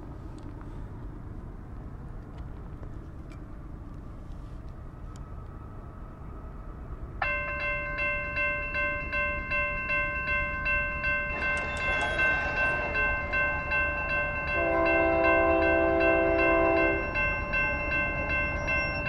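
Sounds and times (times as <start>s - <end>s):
approaching train: 0.0s - 19.0s
railroad crossing bell ringing: 7.2s - 19.0s.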